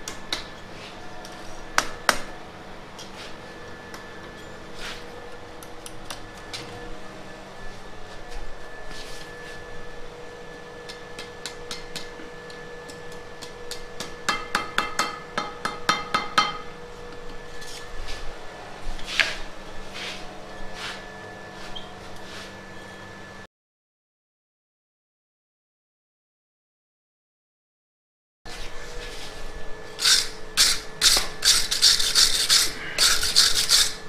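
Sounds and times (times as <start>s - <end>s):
steady hum: 0.0s - 23.5s, 28.5s - 34.0s
hammer striking steel on anvil: 12.8s - 17.2s.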